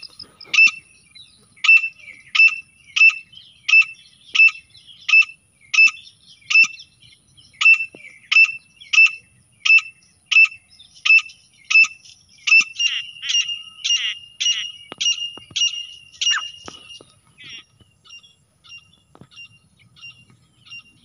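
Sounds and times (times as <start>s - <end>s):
bird calling sharp high notes: 7.6s - 17.7s.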